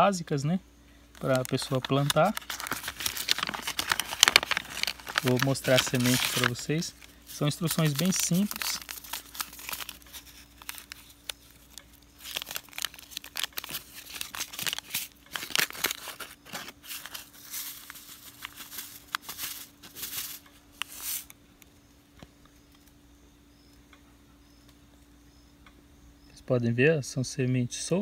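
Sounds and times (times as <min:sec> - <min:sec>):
foil pouch crinkling and tearing: 0:01.1 - 0:21.4.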